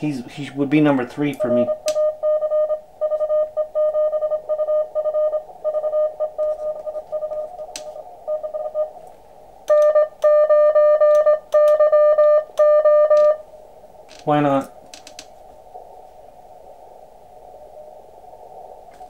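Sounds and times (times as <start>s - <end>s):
radio band noise hiss: 0.0s - 2.2s
morse code tones: 1.4s - 9.0s, 9.7s - 13.4s.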